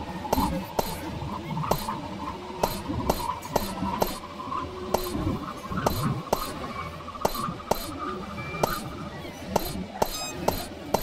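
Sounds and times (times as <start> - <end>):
steady high hum: 0.0 - 11.0
sharp electronic clicks: 0.3 - 1.0, 1.7 - 2.0, 2.6 - 4.2, 5.0 - 5.2, 5.9 - 6.6, 7.2 - 8.0, 8.6 - 8.8, 9.6 - 11.0.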